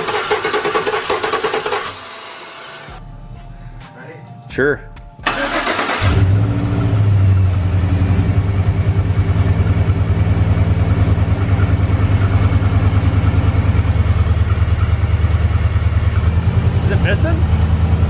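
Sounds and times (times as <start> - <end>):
engine idling with pulsing beat: 6.2 - 18.0.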